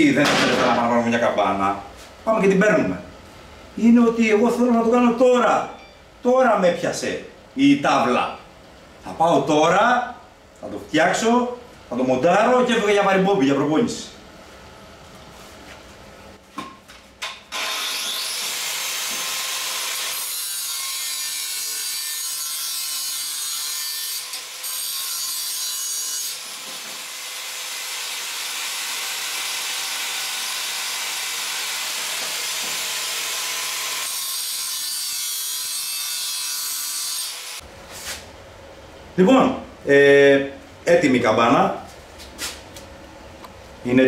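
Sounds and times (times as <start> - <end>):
angle grinder grinding metal: 17.5 - 37.6.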